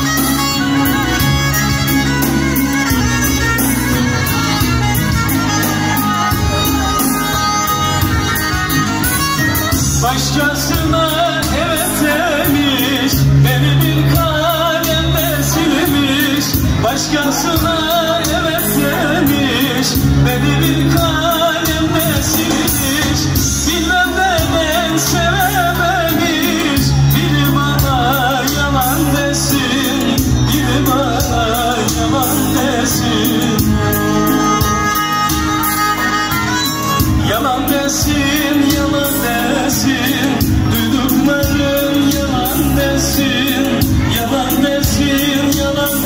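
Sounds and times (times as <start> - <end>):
bowed gourd fiddle: 0.0 - 11.0, 29.2 - 39.0
electronic keyboard with bass beat: 0.0 - 46.0
man singing wavering melody: 0.0 - 46.0.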